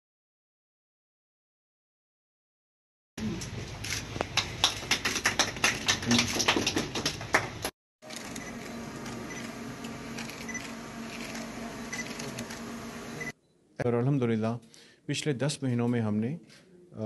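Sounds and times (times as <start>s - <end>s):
low room hum: 3.2s - 14.0s
hand clapping: 4.2s - 7.7s.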